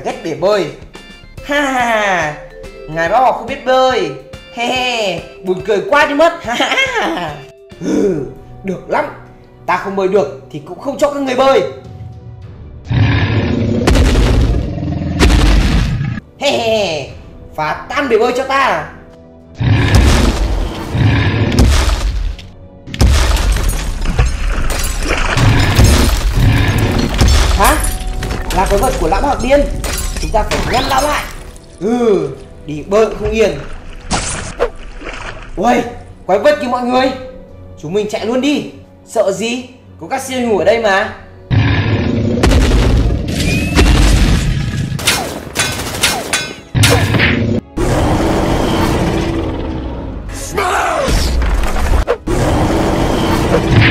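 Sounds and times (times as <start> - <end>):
background music: 0.0 - 53.9
booms: 13.8 - 16.2, 41.6 - 44.7
crashing and smashing: 21.6 - 31.8.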